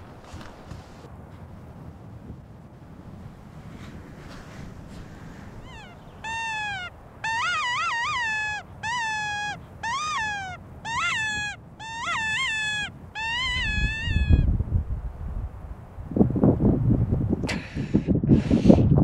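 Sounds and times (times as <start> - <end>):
wind rumbling on microphone: 0.0 - 19.0
predator call distress cries: 5.5 - 14.5.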